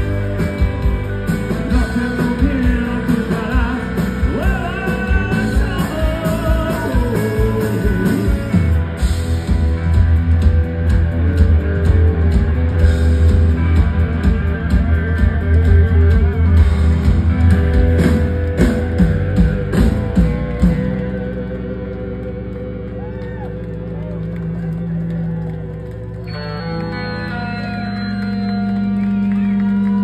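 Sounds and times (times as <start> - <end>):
drum kit beat: 0.0 - 21.6
bass guitar: 0.0 - 30.0
electric guitars: 0.0 - 30.0.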